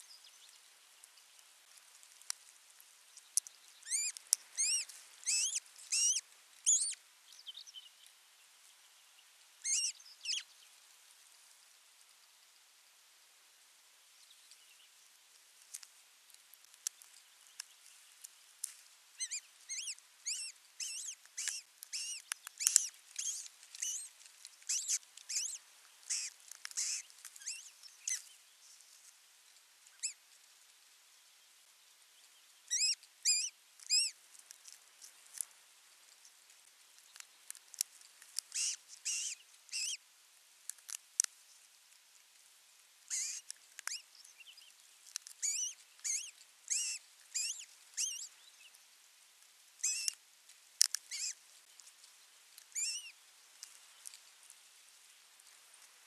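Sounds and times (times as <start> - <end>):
bird high thin chirps: 3.2 - 7.6, 9.6 - 10.5, 19.2 - 28.4, 29.9 - 30.2, 32.7 - 34.2, 38.4 - 40.0, 43.1 - 48.6, 49.8 - 50.2, 50.9 - 51.4, 52.7 - 53.2.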